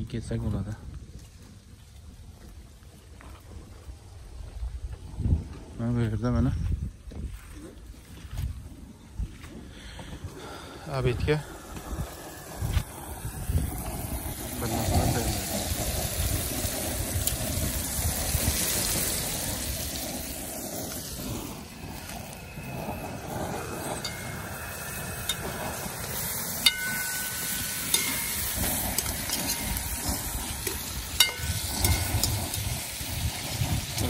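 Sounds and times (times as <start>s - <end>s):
propane burner rumble: 0.0s - 34.0s
meat and onions sizzling: 10.4s - 34.0s
metal spoon clinking on pot: 26.7s - 29.8s.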